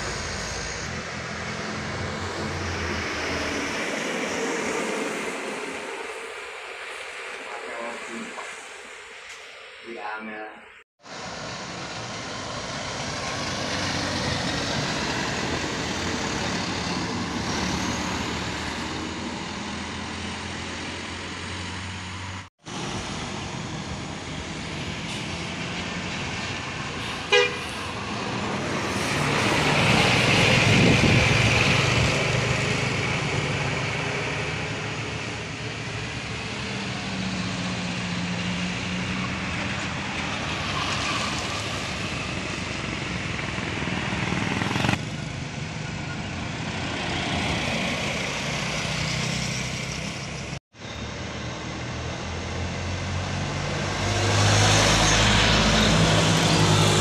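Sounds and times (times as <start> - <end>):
bus engine passing: 0.0 - 9.8, 11.0 - 57.0
truck passing: 0.0 - 9.8, 11.0 - 57.0
short horn toot: 27.2 - 27.8.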